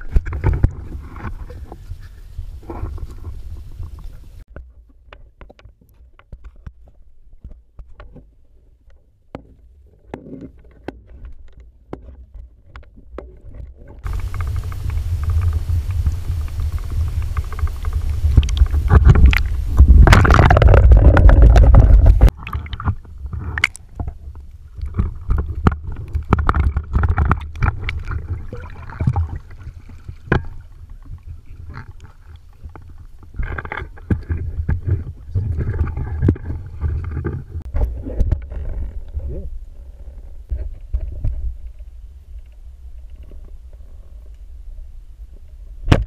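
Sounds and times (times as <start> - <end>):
muffled underwater rumble: 0.0 - 4.4, 14.0 - 46.0
quiet water movement: 0.0 - 46.0.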